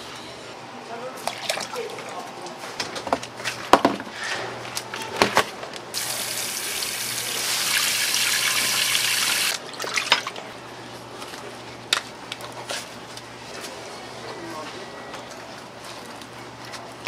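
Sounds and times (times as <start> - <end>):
water running from a tap: 6.0 - 9.6.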